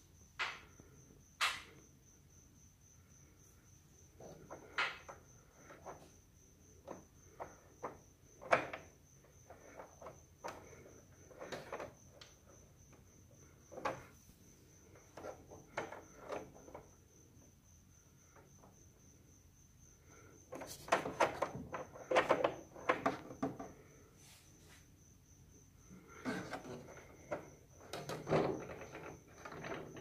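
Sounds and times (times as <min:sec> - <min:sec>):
irregular clicks and knocks: 0:00.3 - 0:01.8, 0:04.1 - 0:06.1, 0:06.7 - 0:14.2, 0:14.8 - 0:17.0, 0:20.5 - 0:23.8, 0:26.2 - 0:30.0.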